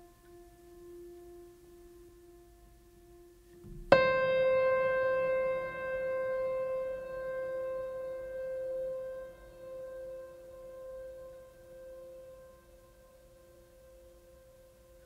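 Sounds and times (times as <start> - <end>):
soft sustained tone: 0.0 - 15.0.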